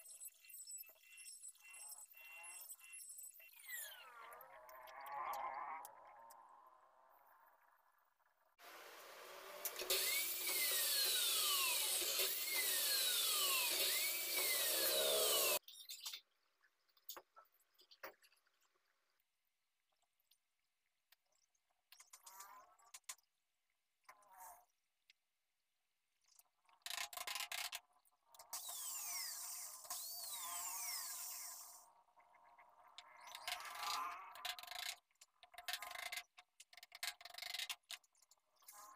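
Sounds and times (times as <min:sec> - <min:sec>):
electric mitre saw cutting wood: 0:08.9 - 0:15.6, 0:28.6 - 0:31.8.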